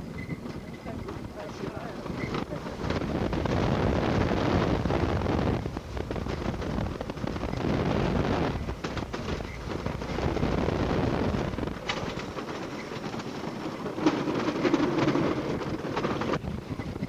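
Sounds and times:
roller coaster rattling on track: 0.0s - 17.0s
wind buffeting microphone: 0.0s - 17.0s
sharp clacks: 5.6s - 10.6s, 11.3s - 17.0s.

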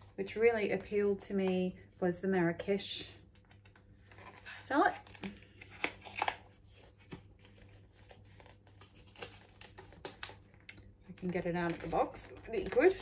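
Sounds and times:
cardboard and paper packaging rustling: 3.9s - 10.5s, 11.1s - 13.0s.

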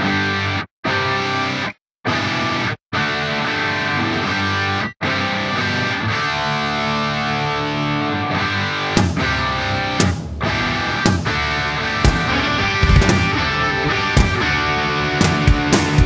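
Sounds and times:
rock music with distorted guitar: 0.0s - 16.0s
sharp hit: 9.0s - 16.0s.

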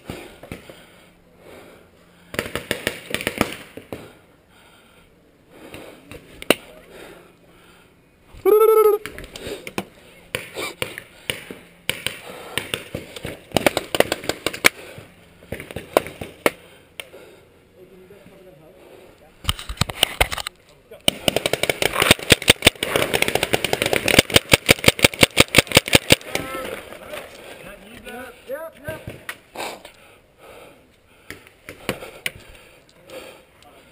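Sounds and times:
paintball markers firing: 2.3s - 4.1s, 9.1s - 16.6s, 21.0s - 27.3s
paintballs smacking cover: 9.0s - 14.8s, 19.5s - 27.3s.

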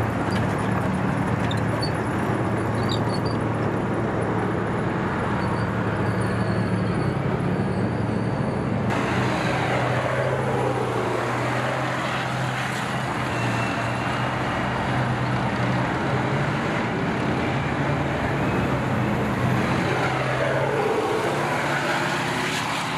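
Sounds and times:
tank engines droning: 0.0s - 22.9s
heavy mechanical noise: 8.9s - 11.9s.

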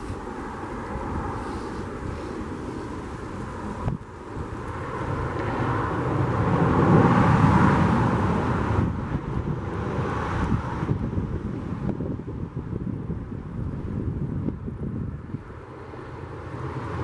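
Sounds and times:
distant steam locomotive rumble: 0.0s - 10.1s, 14.7s - 17.0s
wind buffeting microphone: 0.0s - 17.0s.

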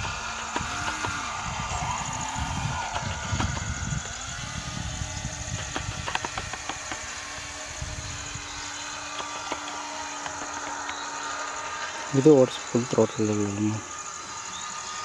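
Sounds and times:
low rumbling: 0.0s - 9.4s
electric propeller motors buzzing: 0.0s - 15.0s.

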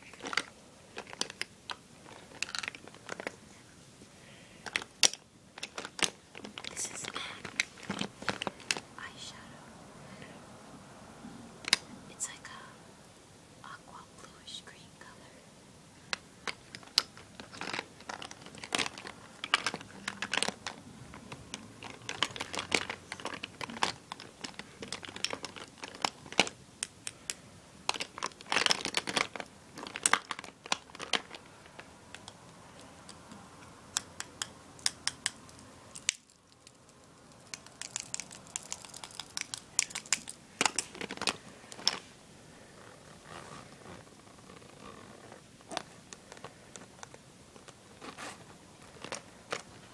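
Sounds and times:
plastic bag crinkling: 0.0s - 3.4s, 4.6s - 9.1s, 16.5s - 33.2s, 35.5s - 49.9s
makeup items clicking together: 0.1s - 3.3s, 4.6s - 8.8s, 16.1s - 36.8s, 37.4s - 42.0s.

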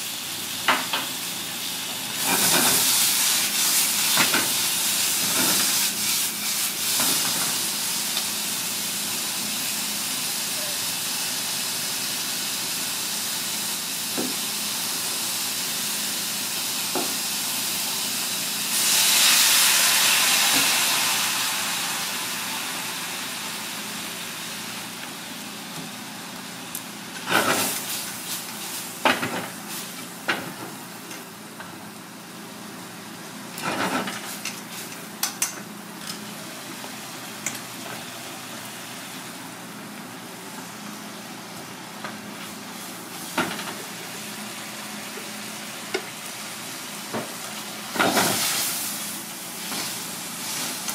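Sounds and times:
loud hissing of liquid in pan: 0.0s - 25.0s, 27.2s - 30.9s, 42.5s - 50.9s
food sizzling in a wok: 0.0s - 50.9s.

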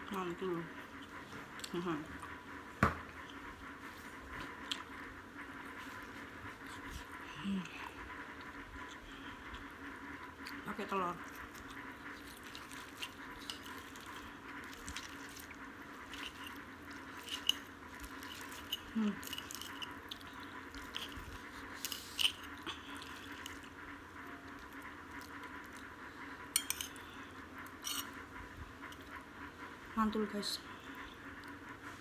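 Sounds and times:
chewing and mouth smacks: 11.3s - 23.7s.

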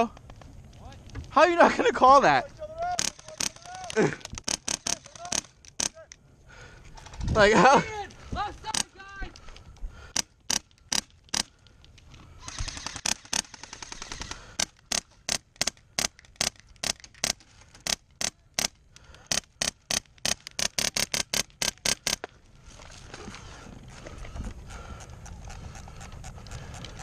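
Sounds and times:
airsoft rifle shots: 2.9s - 6.1s, 12.4s - 22.2s
rapid rattle of shots: 12.4s - 18.7s.

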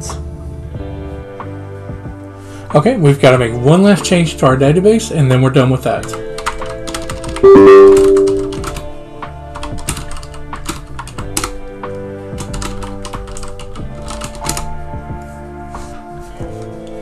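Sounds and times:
background music with held notes: 0.0s - 17.0s
computer keyboard typing: 6.1s - 8.9s, 9.6s - 11.5s, 12.4s - 14.7s.

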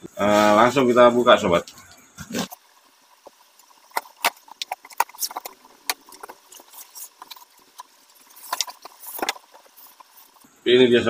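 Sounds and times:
cardboard and foam scraping: 4.0s - 10.4s.

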